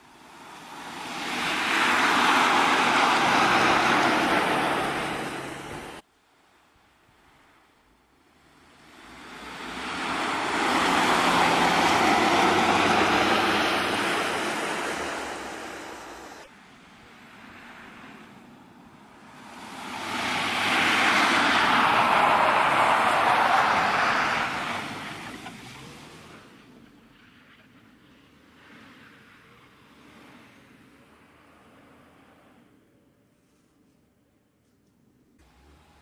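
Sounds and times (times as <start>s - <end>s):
car engine and tyres on ice: 0.0s - 36.0s.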